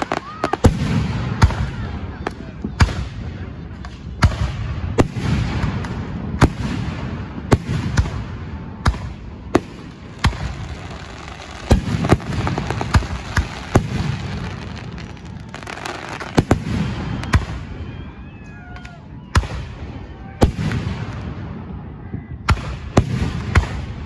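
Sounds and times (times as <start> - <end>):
fireworks bangs: 0.0 - 24.0
fireworks cracks: 5.0 - 17.7.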